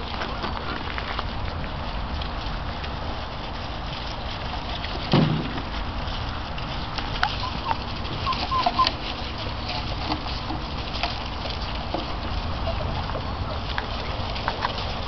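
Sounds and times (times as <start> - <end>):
puppies yipping and squeaking: 3.2 - 15.0.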